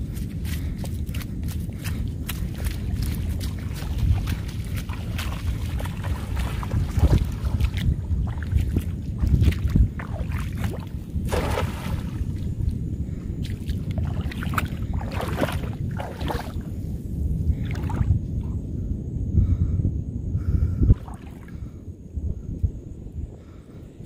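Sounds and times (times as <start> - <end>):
wind rumble on microphone: 0.0 - 24.0
water splashing: 1.9 - 12.7, 13.4 - 16.7.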